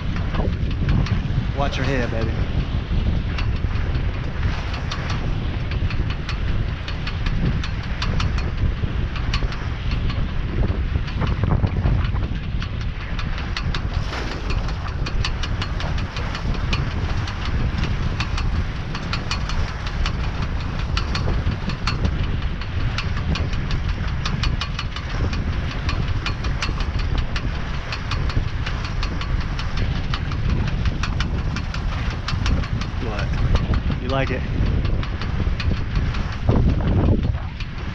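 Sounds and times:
rapid uneven ticking: 0.0s - 37.9s
wind buffeting microphone: 0.0s - 37.9s.

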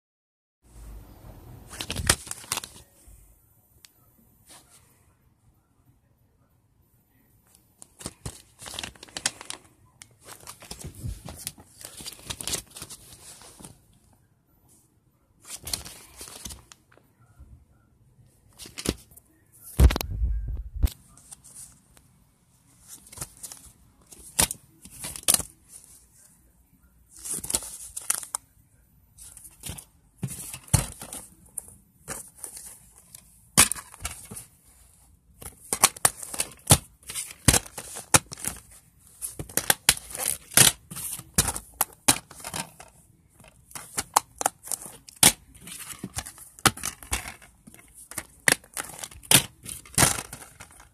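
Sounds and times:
plastic cases rustling and clicking: 7.8s - 13.8s, 15.5s - 17.0s, 22.9s - 25.9s, 29.2s - 34.6s, 35.4s - 50.9s.

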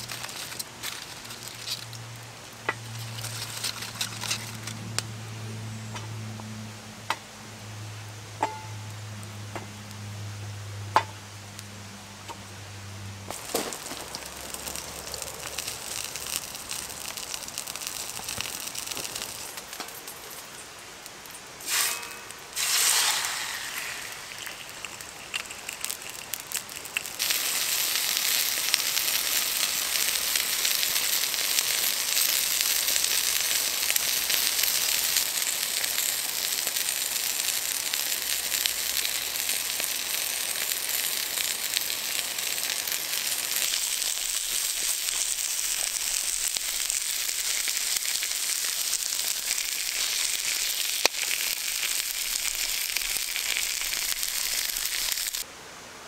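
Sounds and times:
campfire crackling: 0.0s - 5.6s, 8.1s - 55.5s
steak sizzling in a frying pan: 13.3s - 20.6s, 21.7s - 55.4s.

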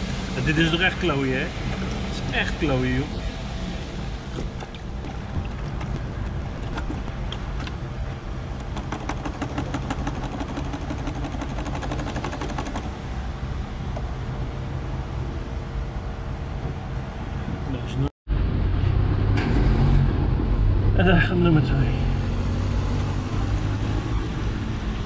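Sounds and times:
low vehicle rumble: 1.3s - 25.0s.

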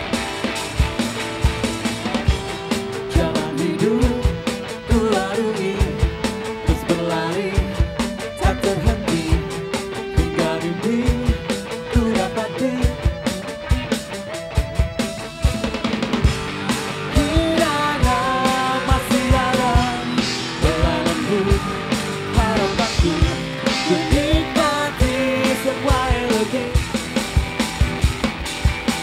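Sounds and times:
drum kit beat: 0.0s - 29.0s
electric guitars: 0.0s - 29.0s
person singing: 2.8s - 14.0s, 17.1s - 26.9s.

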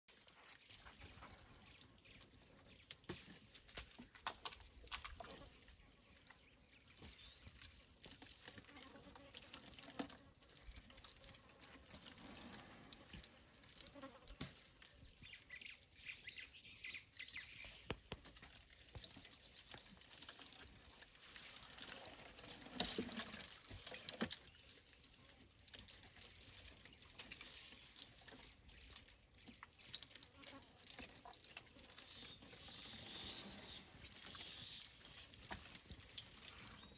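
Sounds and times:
elephant chewing branches: 0.1s - 5.8s, 6.8s - 15.6s, 17.5s - 36.9s
twigs snapping and leaves rustling: 0.1s - 36.9s.

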